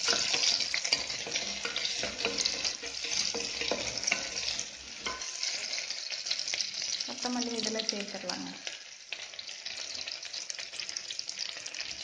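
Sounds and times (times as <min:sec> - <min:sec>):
spatula scraping pot: 0:00.0 - 0:06.9
food sizzling in oil: 0:00.0 - 0:12.0.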